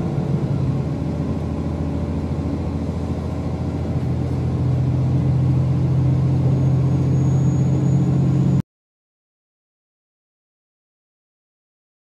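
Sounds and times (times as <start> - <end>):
train engine drone: 0.0 - 8.6
train track running noise: 0.0 - 8.6.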